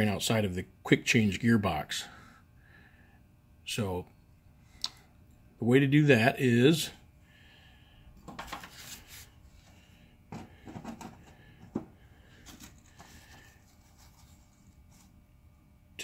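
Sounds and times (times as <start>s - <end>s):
paper rustling: 8.3s - 9.3s.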